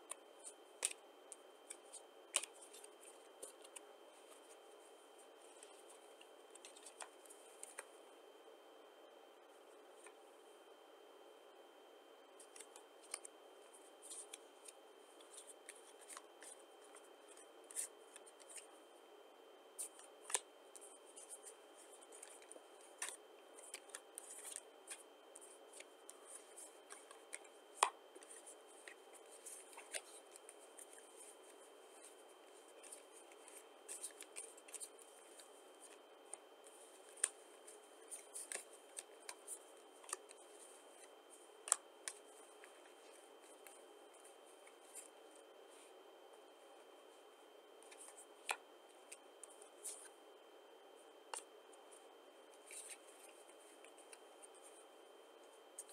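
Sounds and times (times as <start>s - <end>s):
playing cards clicking and rustling: 0.1s - 4.6s, 5.5s - 7.9s, 12.4s - 13.4s, 14.0s - 18.7s, 19.8s - 45.1s, 47.8s - 50.1s, 52.5s - 54.6s.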